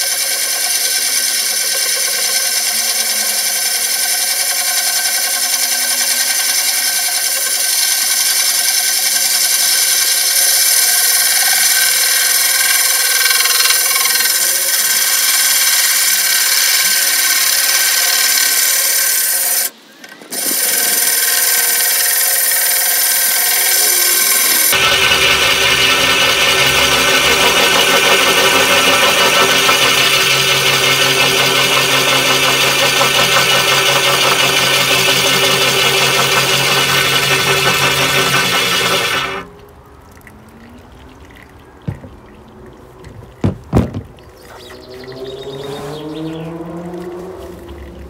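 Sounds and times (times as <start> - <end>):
drill grinding through glass: 0.0 - 19.7, 20.3 - 39.5
running water: 20.3 - 48.0.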